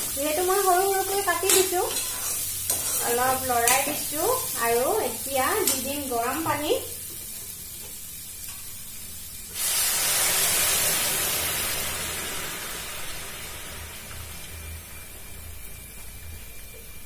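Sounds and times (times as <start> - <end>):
faint sizzle: 0.0 - 17.0
loud hiss of steam: 9.4 - 15.6
water pouring into wok: 9.5 - 16.5.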